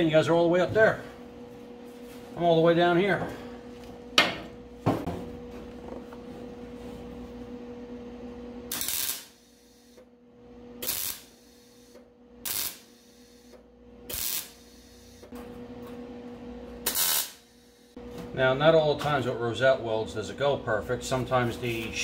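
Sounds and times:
steady low hum: 0.0 - 22.0
welder short bursts: 8.7 - 10.0, 10.8 - 15.2, 16.9 - 17.9.

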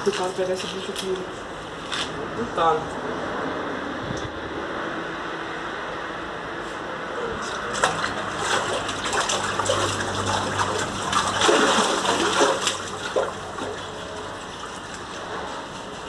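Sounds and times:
water splashing in a tank: 7.5 - 16.0.

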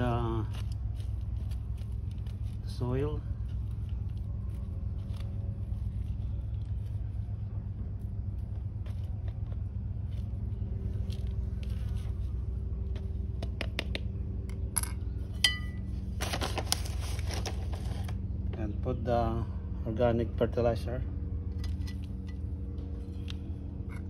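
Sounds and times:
steady low hum: 0.0 - 24.0
rustling: 0.4 - 13.3, 16.0 - 18.2
soil scraping in plastic pot: 16.2 - 18.2.

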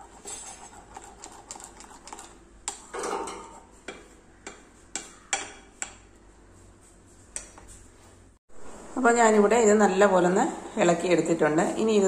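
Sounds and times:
spoon scraping bowl: 0.0 - 4.2.

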